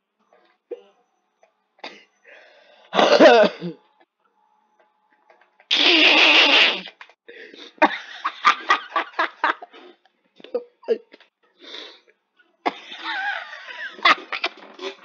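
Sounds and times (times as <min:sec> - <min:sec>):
cat crying: 0:05.7 - 0:06.8.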